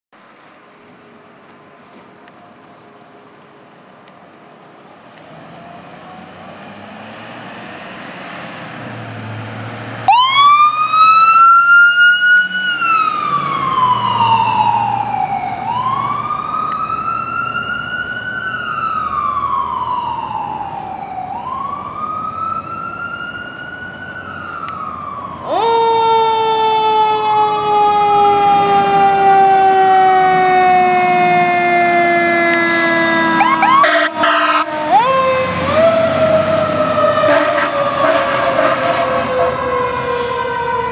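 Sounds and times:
mechanical siren howl: 10.1s - 40.9s
electronic siren wailing: 24.8s - 40.9s.

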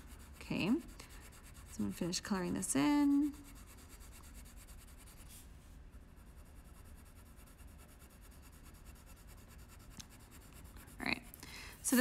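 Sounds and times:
pencil scratching on paper: 0.0s - 12.0s.

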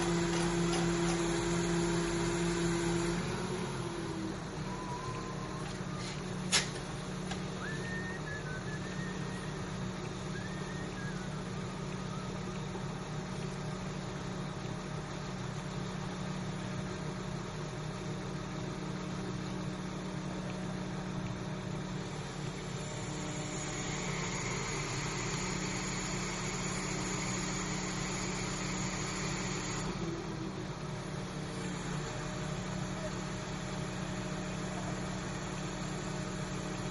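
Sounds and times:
crane engine running: 0.0s - 36.9s
hiss: 23.1s - 29.9s.

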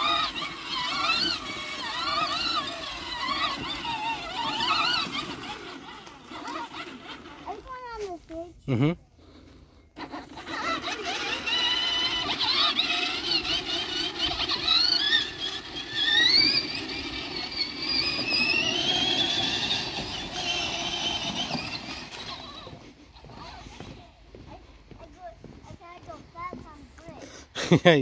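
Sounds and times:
low rumble of wheels: 0.0s - 27.9s
high-pitched electric motor whine: 10.2s - 24.4s.

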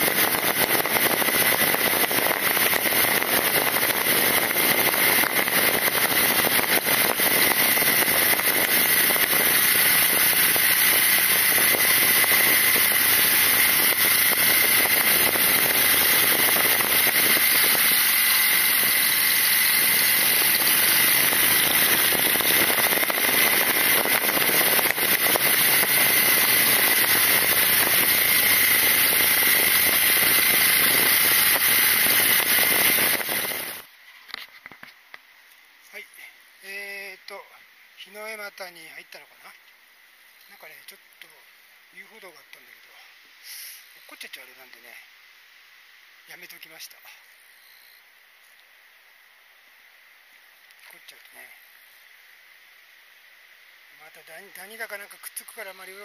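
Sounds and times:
motorcycle engine running: 0.0s - 33.9s
wind noise: 0.0s - 33.9s
road noise: 0.0s - 35.2s.

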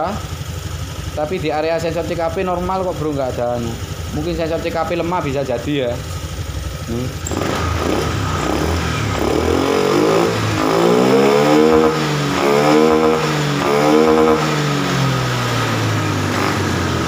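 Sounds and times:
scooter engine idling and revving: 0.0s - 17.0s.

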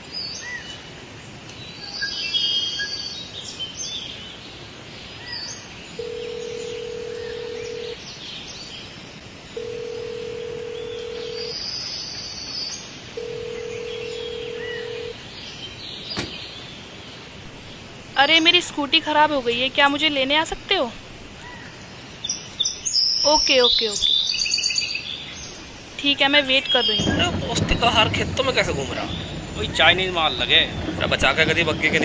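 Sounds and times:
birds chirping: 1.6s - 32.0s
telephone ringback tone: 6.0s - 8.0s, 9.6s - 11.6s, 13.2s - 15.2s.

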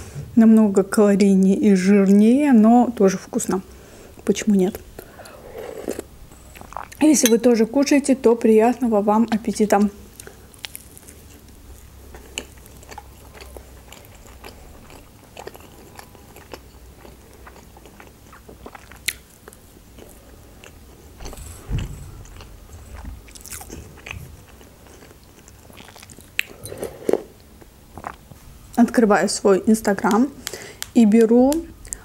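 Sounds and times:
loud dull bump: 21.2s - 23.3s.

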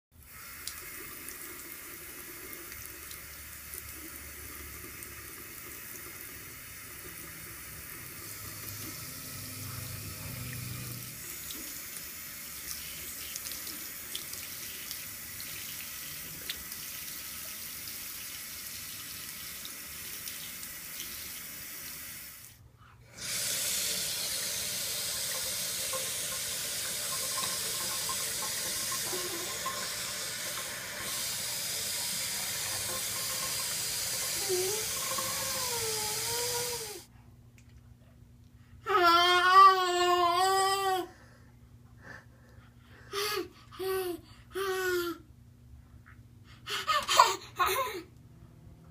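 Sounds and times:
faucet running into a sink: 0.2s - 22.5s, 23.2s - 37.0s.

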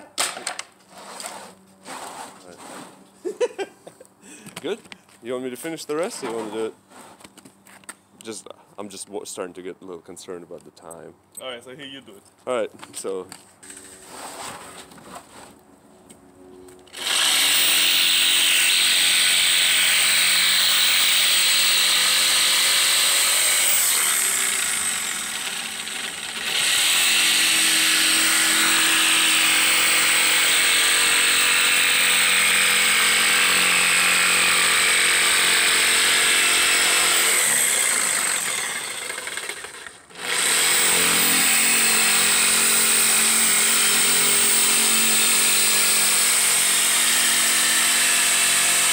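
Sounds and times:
jigsaw cutting plywood: 16.9s - 48.9s.

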